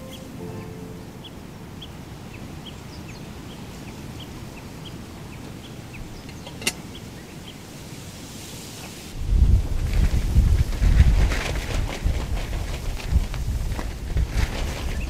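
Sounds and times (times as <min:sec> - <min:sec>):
short high chirps: 0:00.0 - 0:01.8
low rumble of wind: 0:00.0 - 0:15.0.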